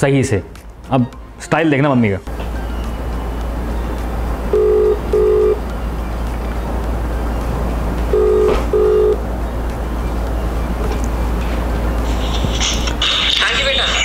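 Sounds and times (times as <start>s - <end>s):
steady low hum: 2.3s - 13.1s
phone ringback tone: 4.5s - 5.6s, 8.1s - 9.2s.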